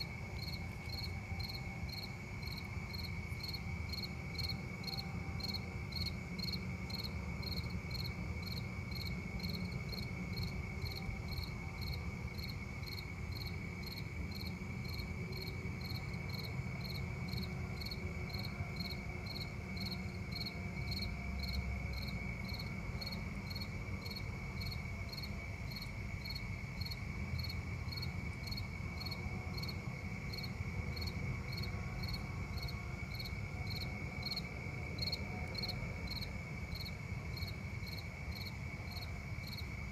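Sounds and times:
cricket chirping: 0:00.0 - 0:39.9.

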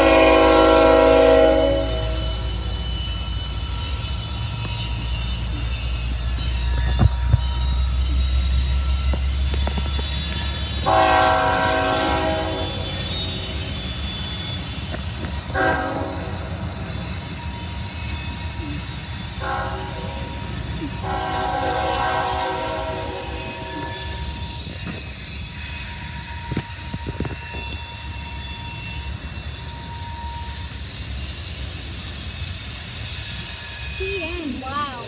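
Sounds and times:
locomotive air horn blasts: 0:00.0 - 0:02.5, 0:10.8 - 0:12.8, 0:15.5 - 0:16.5, 0:19.4 - 0:20.2, 0:21.0 - 0:23.7
train rumble: 0:00.0 - 0:35.0.

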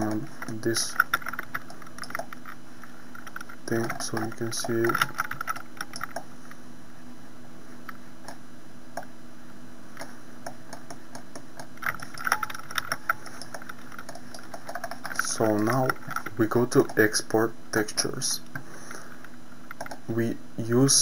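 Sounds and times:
steady low hum: 0:00.0 - 0:21.0
mouse and keyboard clicks: 0:00.4 - 0:02.6, 0:03.2 - 0:06.3, 0:10.0 - 0:17.1, 0:19.7 - 0:20.0.

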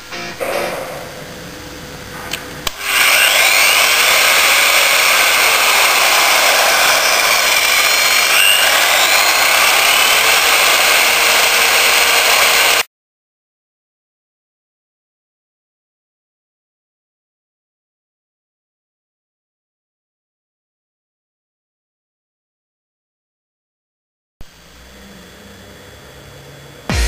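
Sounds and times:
electric finishing machine running: 0:00.9 - 0:12.9, 0:24.4 - 0:27.0.

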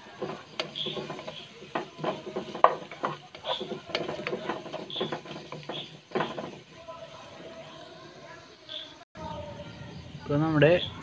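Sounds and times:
wooden spatula scraping a pan: 0:00.0 - 0:07.7.

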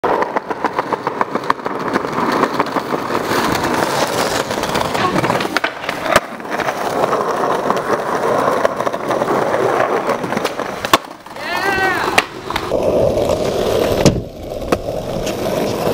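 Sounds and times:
skateboard wheels rolling on stone: 0:00.0 - 0:15.9
sharp crack: 0:10.3 - 0:12.8.

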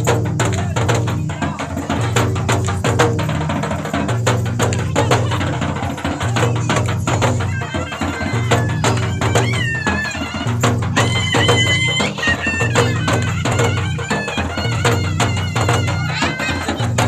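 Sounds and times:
fast drumming: 0:00.0 - 0:17.0
reedy wind instrument melody: 0:07.4 - 0:17.0.

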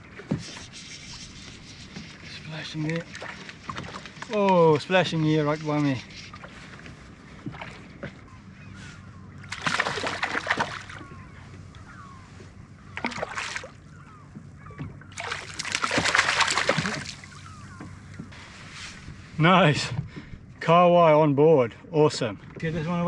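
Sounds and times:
fish splashing in water: 0:09.4 - 0:12.1, 0:12.8 - 0:14.2, 0:14.8 - 0:17.8.

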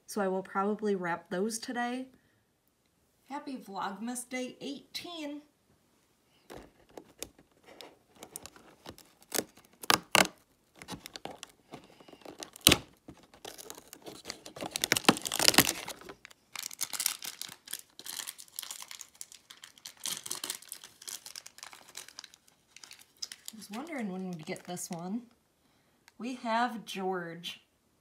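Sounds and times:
plastic wrapping crinkling: 0:06.4 - 0:25.1
cardboard tearing open: 0:06.5 - 0:23.9.

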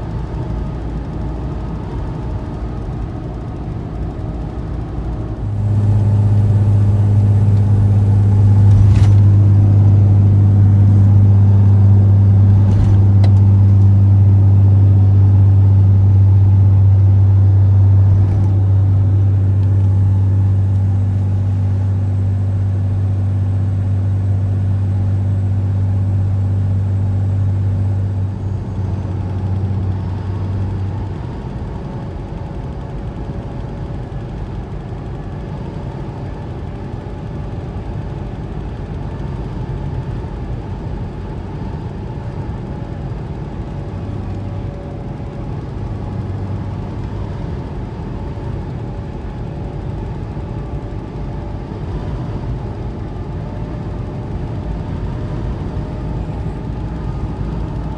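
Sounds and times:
truck engine and tyres rumbling: 0:00.0 - 0:57.9
loud low drone: 0:05.1 - 0:29.8.

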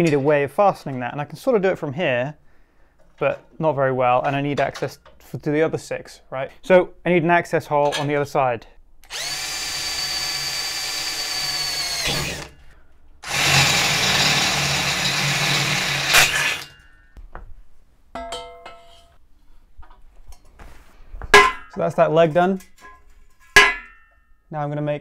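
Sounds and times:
cordless drill boring through steel: 0:09.0 - 0:16.7.

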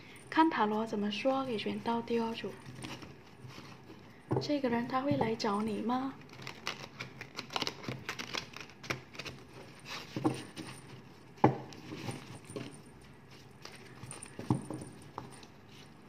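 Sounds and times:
cards being shuffled: 0:05.6 - 0:10.8.

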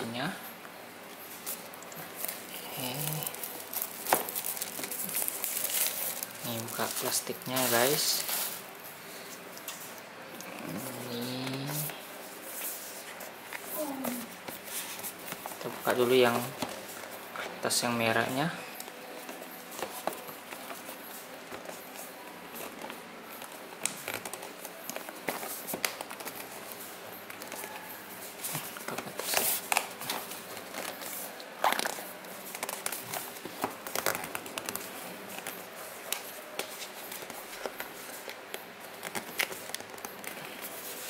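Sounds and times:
paper and cardboard rustling: 0:01.3 - 0:10.0, 0:19.1 - 0:41.0.

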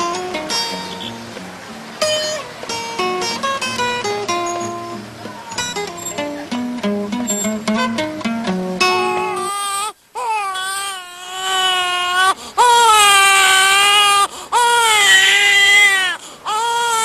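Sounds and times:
plucked guitar music: 0:00.0 - 0:09.5
infant crying: 0:09.0 - 0:17.0.

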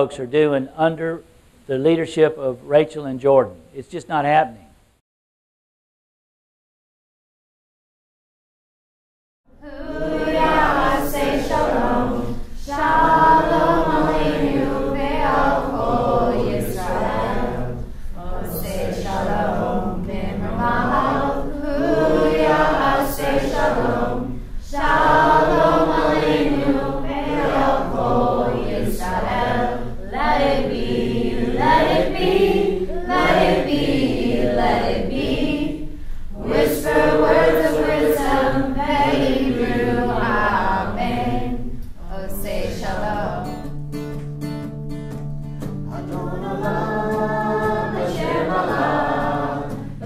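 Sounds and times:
choir singing: 0:09.6 - 0:43.7, 0:45.9 - 0:50.0.

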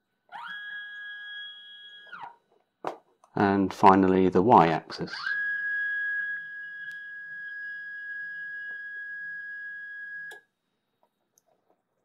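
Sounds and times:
stepper motor whining: 0:00.3 - 0:02.4, 0:05.1 - 0:10.5.

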